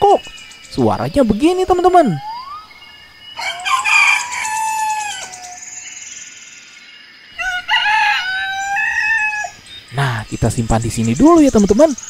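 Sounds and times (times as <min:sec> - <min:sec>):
rooster crowing: 0:03.4 - 0:05.7, 0:07.4 - 0:09.6.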